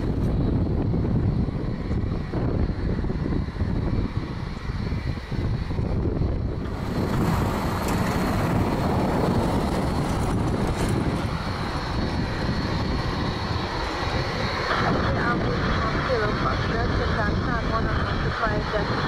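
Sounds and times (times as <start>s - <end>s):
jet engines rumbling and whining: 0.0s - 19.0s.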